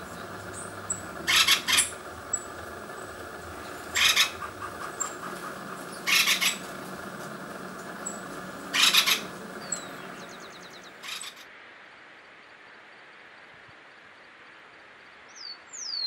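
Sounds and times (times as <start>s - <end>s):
woodpecker harsh calls: 0.0s - 11.4s
small birds high notes and trill: 0.0s - 11.5s.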